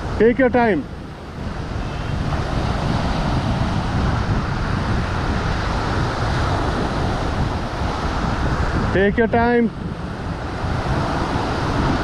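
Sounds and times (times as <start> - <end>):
ocean surf washing over rocks: 0.0 - 12.0
wind buffeting microphone: 0.0 - 12.0.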